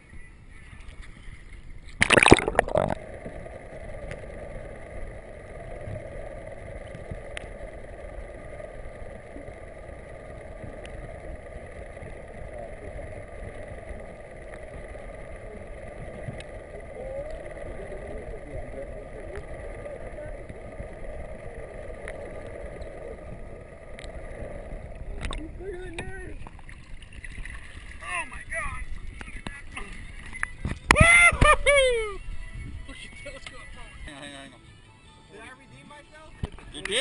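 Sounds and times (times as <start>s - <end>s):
muffled underwater motor hum: 0.0s - 34.6s, 35.6s - 37.0s
camera splashing into water: 1.9s - 3.0s
faint ticks: 2.9s - 28.0s, 28.9s - 31.0s.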